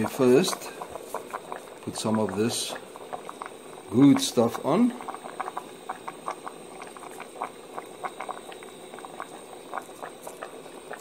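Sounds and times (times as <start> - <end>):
stock boiling with pops: 0.0 - 11.0.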